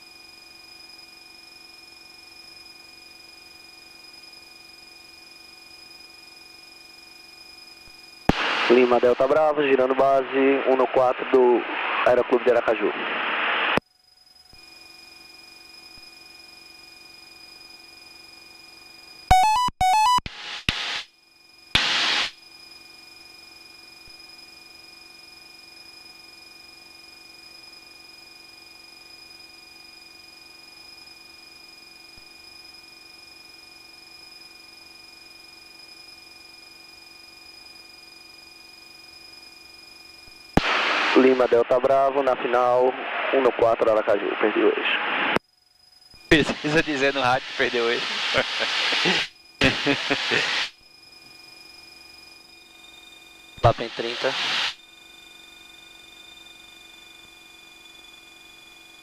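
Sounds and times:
short burst of noise: 0:08.3 - 0:09.2, 0:21.8 - 0:22.4, 0:40.6 - 0:42.0, 0:46.3 - 0:50.8, 0:53.6 - 0:54.8
faint electronic tones: 0:19.3 - 0:20.5, 0:40.6 - 0:45.4, 0:46.3 - 0:50.6, 0:52.9 - 0:54.7
quick electronic beeps: 0:19.3 - 0:21.0.

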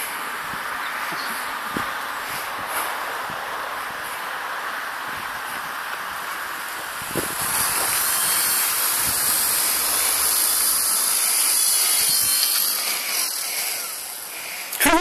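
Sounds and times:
high-pitched toy helicopter whine: 0:05.2 - 0:15.0.

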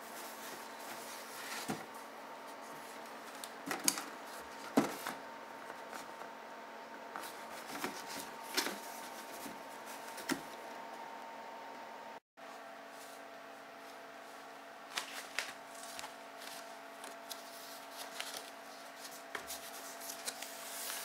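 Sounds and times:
faint steady hum: 0:00.0 - 0:21.0.

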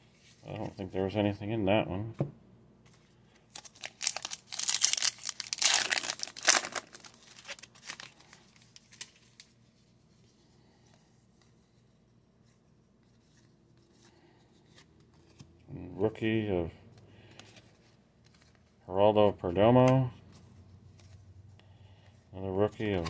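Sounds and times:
foil wrapper tearing and crinkling: 0:03.5 - 0:09.4.

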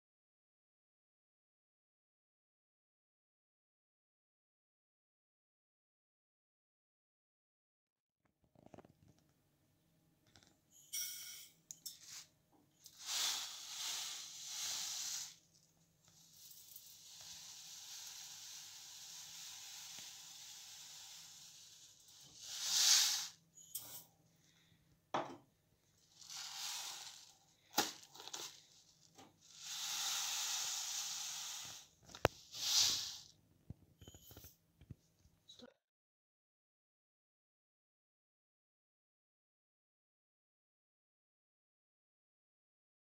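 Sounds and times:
grains pouring into metal pot: 0:12.8 - 0:15.5, 0:16.1 - 0:24.0, 0:26.0 - 0:33.3.

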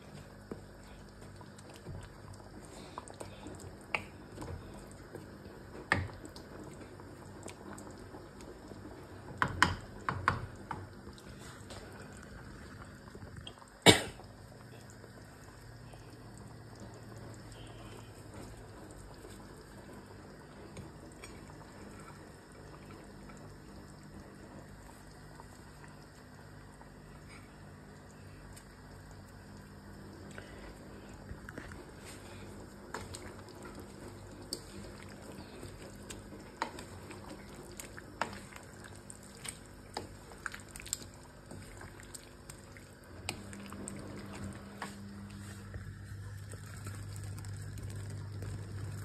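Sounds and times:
wooden spatula stirring stew: 0:31.6 - 0:45.8.

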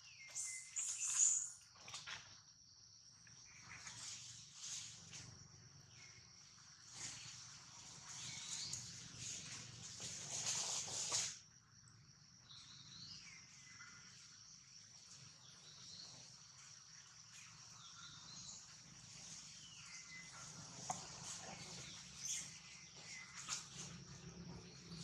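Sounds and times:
faint falling whistled calls: 0:00.0 - 0:01.6.

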